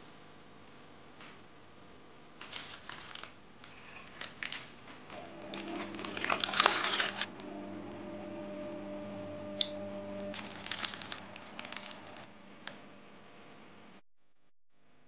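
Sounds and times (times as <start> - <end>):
baking parchment crinkling: 2.4 - 7.3, 10.3 - 12.3.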